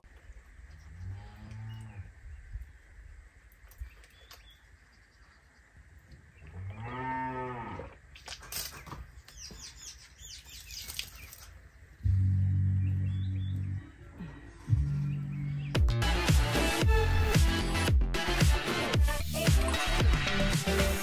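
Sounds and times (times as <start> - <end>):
cow mooing: 1.0 - 2.1, 6.5 - 8.0
water splashing and spitting: 10.5 - 11.6.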